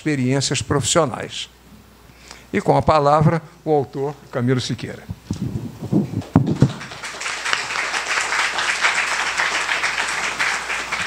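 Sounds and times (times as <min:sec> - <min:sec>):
microphone knocks and bumps: 0:05.1 - 0:06.8
audience applause: 0:06.2 - 0:11.0.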